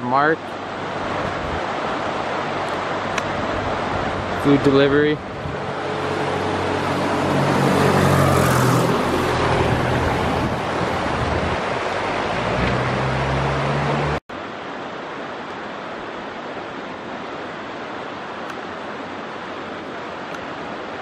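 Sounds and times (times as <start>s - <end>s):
steady rushing noise: 0.0s - 21.0s
propeller plane droning overhead: 1.8s - 12.4s.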